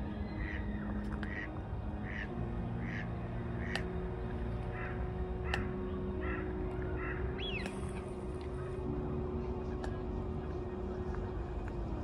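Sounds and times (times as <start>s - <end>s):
low drone: 0.0s - 12.0s
ducks quacking: 1.3s - 3.1s.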